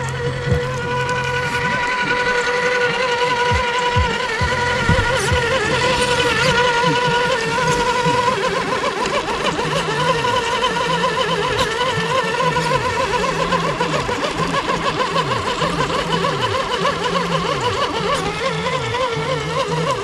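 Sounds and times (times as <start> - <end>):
falling bass notes: 0.0 - 8.6
wavering synth tone: 0.0 - 20.0.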